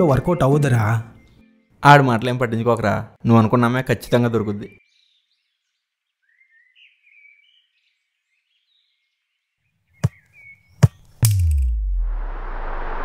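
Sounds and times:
faint bird chirps: 0:04.6 - 0:11.2
whoosh with deep falling boom: 0:11.3 - 0:13.0.

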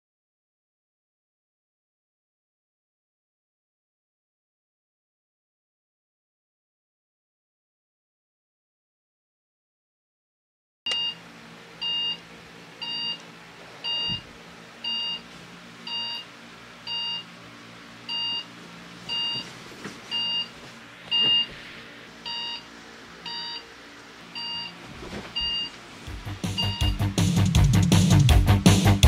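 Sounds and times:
phone alarm beeping: 0:10.9 - 0:11.2, 0:11.8 - 0:12.2, 0:12.8 - 0:13.2, 0:13.8 - 0:14.2, 0:14.8 - 0:15.2, 0:15.9 - 0:16.3, 0:16.9 - 0:17.3, 0:18.1 - 0:18.5, 0:19.1 - 0:19.5, 0:20.1 - 0:20.5, 0:21.1 - 0:21.5, 0:22.2 - 0:22.6, 0:23.2 - 0:23.6, 0:24.4 - 0:24.8, 0:25.4 - 0:25.7, 0:26.6 - 0:27.0.

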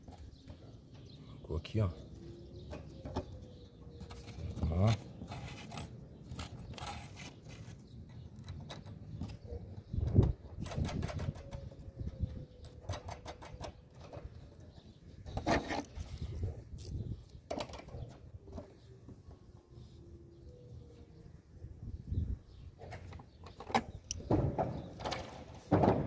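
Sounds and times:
metal clicks and knocks: 0:12.6 - 0:14.7.

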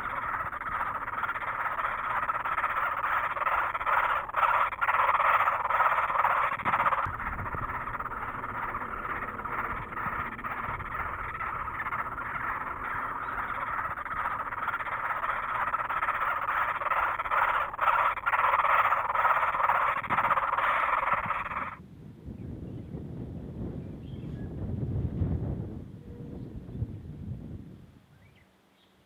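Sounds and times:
nestlings squealing: 0:00.0 - 0:21.8.

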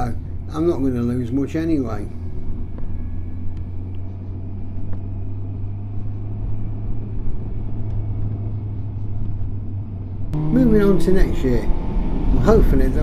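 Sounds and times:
wind and road noise: 0:00.0 - 0:13.0
motorcycle engine running: 0:10.3 - 0:13.0.

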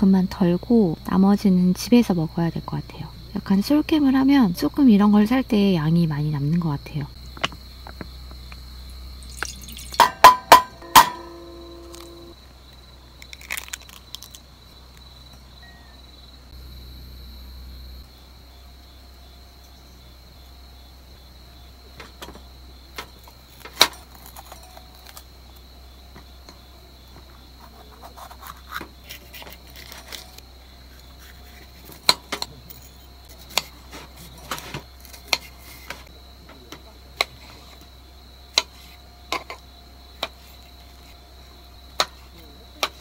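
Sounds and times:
crickets chirping: 0:00.0 - 0:43.0
utensils and containers clinking: 0:09.2 - 0:12.2.

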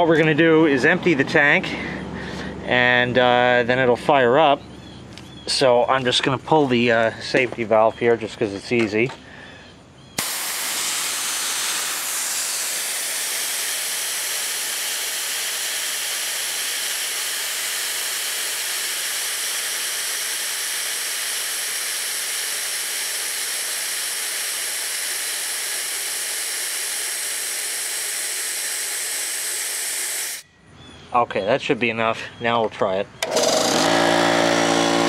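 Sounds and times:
compressed air hissing from valve: 0:10.2 - 0:30.4.

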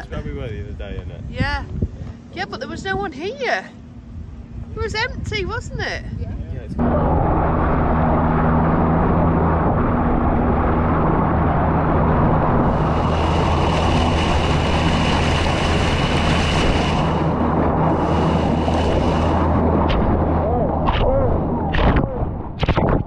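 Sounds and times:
boat engine humming: 0:01.4 - 0:22.6
water rushing along boat hull: 0:07.0 - 0:23.0.

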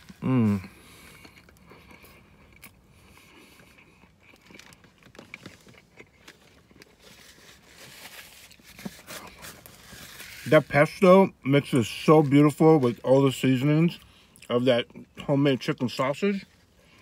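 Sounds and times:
faint chewing: 0:00.0 - 0:10.0
paper wrapper crinkling: 0:04.4 - 0:11.1.

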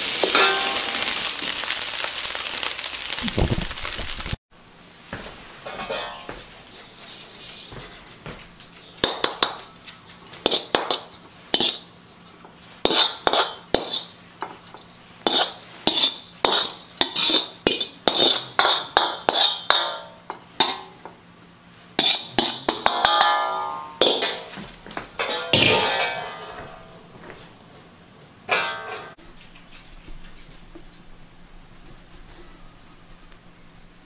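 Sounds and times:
wok ringing: 0:00.0 - 0:03.2, 0:05.6 - 0:06.4, 0:15.3 - 0:21.0, 0:22.0 - 0:24.6, 0:25.2 - 0:27.1, 0:28.5 - 0:29.2
spatula scraping metal wok: 0:10.4 - 0:11.9, 0:12.8 - 0:14.2, 0:15.2 - 0:19.9, 0:22.0 - 0:23.2.

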